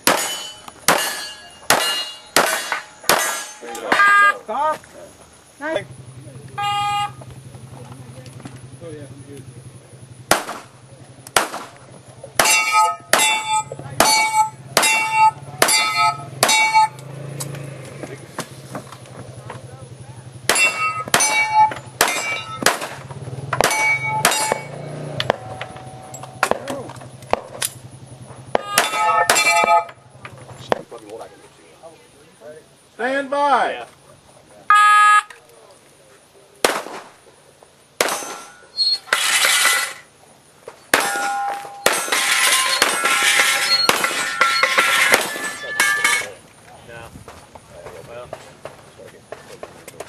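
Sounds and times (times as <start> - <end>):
pistol shots: 0.0 - 4.1, 10.3 - 11.8, 20.5 - 25.8, 28.5 - 29.8, 36.6 - 37.2, 38.0 - 38.6, 40.9 - 43.1, 43.7 - 44.4, 45.1 - 45.7
metallic ringing: 0.0 - 4.5, 12.4 - 17.4, 20.4 - 26.6, 27.6 - 30.3, 38.0 - 40.1, 40.9 - 46.4
steel targets clanging: 0.0 - 4.6, 11.4 - 17.6, 20.4 - 30.8, 38.0 - 46.5.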